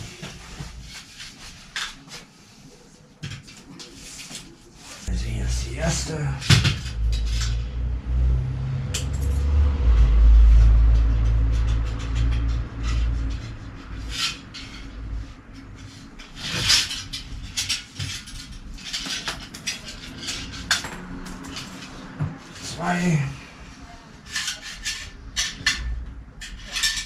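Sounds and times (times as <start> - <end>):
heavy low rumble: 5.1 - 15.6
bicycle wheel clicks and knocks: 17.0 - 22.3.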